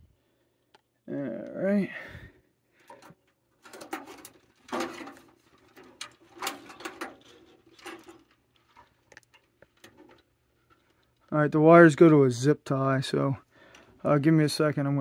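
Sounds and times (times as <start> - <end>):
plastic valve clicking and scraping: 2.8 - 11.3.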